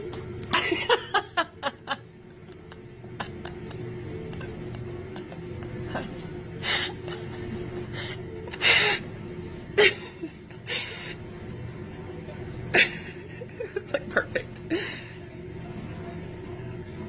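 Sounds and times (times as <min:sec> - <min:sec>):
background music: 0:00.0 - 0:17.0
person stifling laughter: 0:00.5 - 0:07.6, 0:09.8 - 0:10.9.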